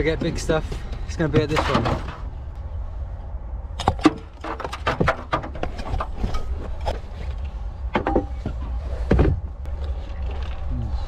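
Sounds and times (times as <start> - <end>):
steady low rumble: 0.0 - 11.0
items knocking and thudding: 1.2 - 2.3, 3.8 - 10.5.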